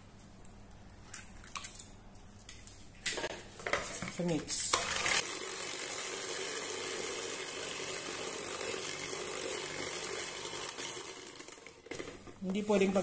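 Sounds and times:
electric hand mixer running: 0:04.9 - 0:12.0.

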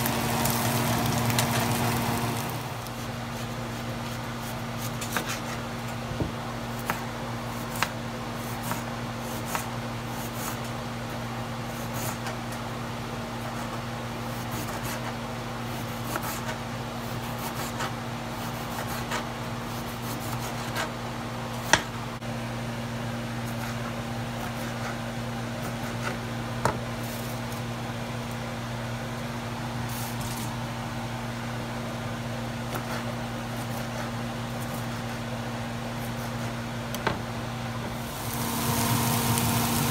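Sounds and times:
mechanical hum: 0:00.0 - 0:39.9
knife slicing vegetables: 0:02.8 - 0:05.6, 0:06.7 - 0:10.7, 0:13.5 - 0:21.0, 0:32.6 - 0:35.3, 0:36.0 - 0:36.6.

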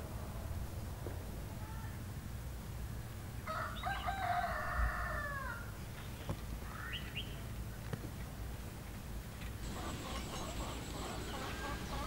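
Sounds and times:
rooster crowing: 0:03.5 - 0:05.7.

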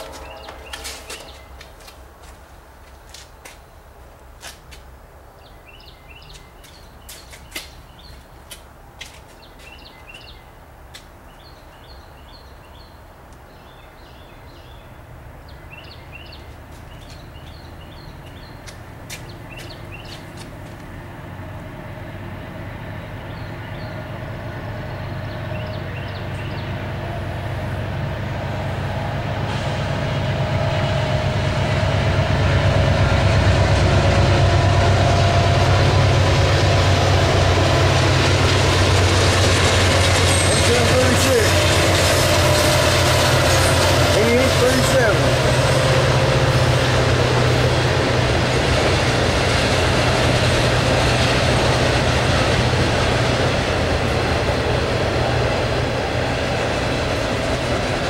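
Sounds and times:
freight train rumble: 0:00.0 - 0:58.0
small birds chirping: 0:05.4 - 0:08.6, 0:09.2 - 0:10.6, 0:11.3 - 0:20.6, 0:22.9 - 0:24.2, 0:24.8 - 0:26.8.

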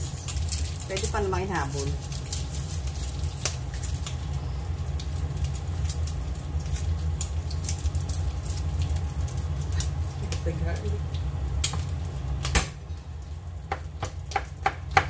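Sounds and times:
food frying in oil: 0:00.0 - 0:15.0
steady low hum: 0:00.0 - 0:15.0
spattering oil pops: 0:11.1 - 0:12.9.

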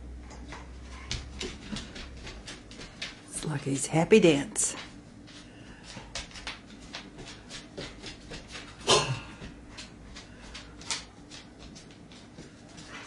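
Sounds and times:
dog claws tapping on hard floor: 0:00.5 - 0:03.4, 0:05.9 - 0:08.8, 0:09.4 - 0:13.0.

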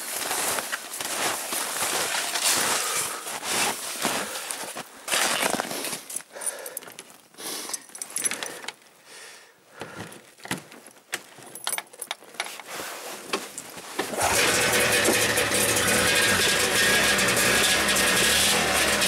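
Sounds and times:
light metallic jangles: 0:07.7 - 0:08.7, 0:11.4 - 0:12.2.

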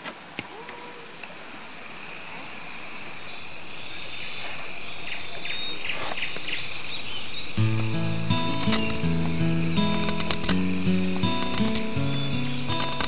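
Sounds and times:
insects chirring: 0:07.5 - 0:13.0.

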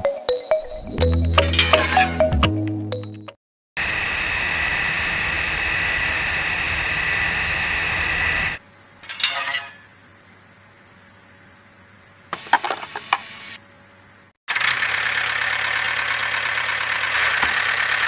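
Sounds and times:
electric pump motor whirring: 0:03.8 - 0:08.6
fuel running: 0:03.8 - 0:08.6, 0:14.5 - 0:18.0.

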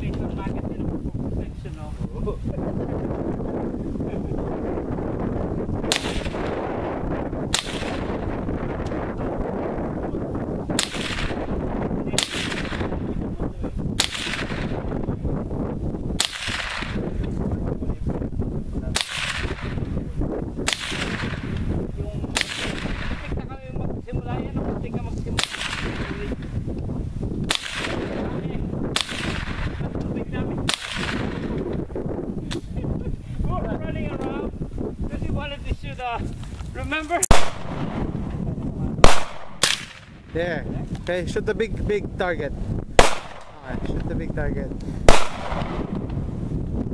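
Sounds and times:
rifle shots: 0:05.8 - 0:06.8, 0:07.5 - 0:08.3, 0:10.7 - 0:13.1, 0:14.0 - 0:14.9, 0:16.2 - 0:17.1, 0:18.9 - 0:19.8, 0:20.6 - 0:21.6, 0:22.3 - 0:23.3, 0:25.4 - 0:26.3, 0:27.5 - 0:28.3, 0:28.9 - 0:29.8, 0:30.7 - 0:31.6, 0:37.3 - 0:38.2, 0:39.0 - 0:40.2, 0:43.0 - 0:43.8, 0:45.1 - 0:46.0.

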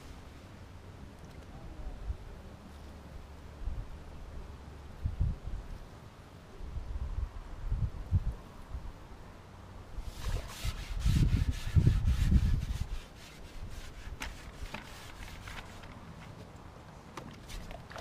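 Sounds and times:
fishing pole rubbing and scraping: 0:10.0 - 0:16.3.

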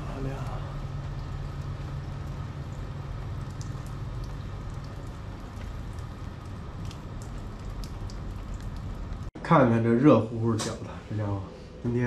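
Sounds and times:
water dripping on metal awning: 0:00.0 - 0:09.4.

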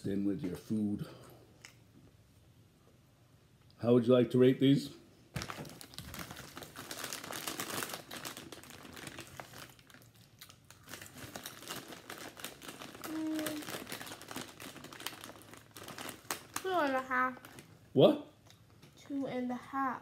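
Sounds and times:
plastic chip bag crinkling: 0:05.3 - 0:17.7
person humming: 0:13.1 - 0:13.7.

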